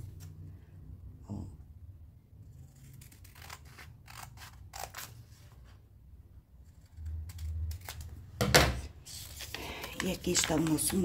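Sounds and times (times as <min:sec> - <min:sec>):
scissors snipping paper: 0:02.7 - 0:05.1, 0:06.7 - 0:08.1, 0:09.4 - 0:11.0.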